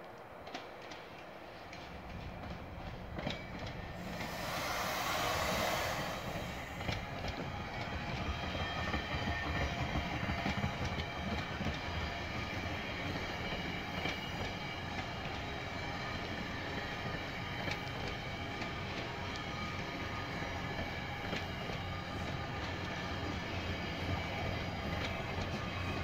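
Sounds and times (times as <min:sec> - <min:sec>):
train rumble: 0:00.0 - 0:26.0
wheels clicking over rail joints: 0:00.0 - 0:26.0
loud rushing hiss: 0:04.0 - 0:07.2.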